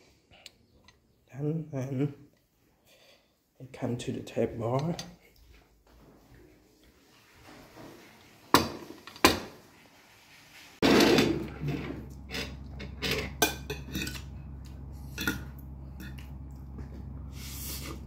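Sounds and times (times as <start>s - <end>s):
steady low hum: 10.8s - 18.0s
metal cutlery clinking on a plate: 12.3s - 14.3s.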